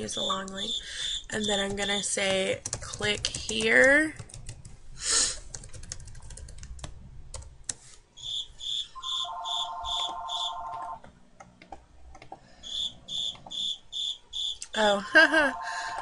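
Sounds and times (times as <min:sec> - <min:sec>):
computer keyboard keystrokes: 0:01.5 - 0:04.7, 0:05.4 - 0:07.8
telephone ringing: 0:09.0 - 0:11.0.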